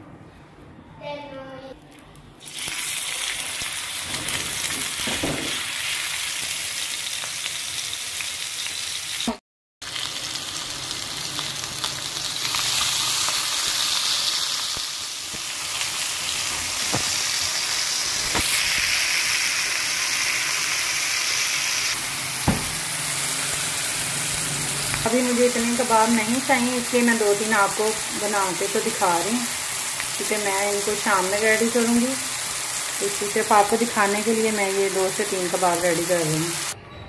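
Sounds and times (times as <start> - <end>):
meat patties sizzling in oil: 2.4 - 36.8
sharp knocks: 22.4 - 22.8.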